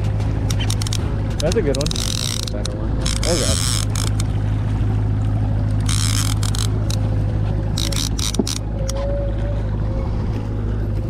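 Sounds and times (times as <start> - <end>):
boat motor droning: 0.0 - 11.0
fishing reel gears clicking: 0.5 - 4.4, 5.7 - 7.0, 7.8 - 8.6.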